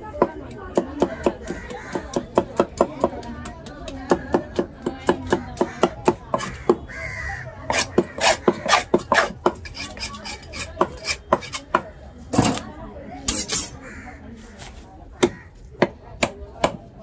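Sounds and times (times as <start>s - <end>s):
knife chopping on wooden block: 0.2s - 6.9s, 7.7s - 12.6s, 15.2s - 16.9s.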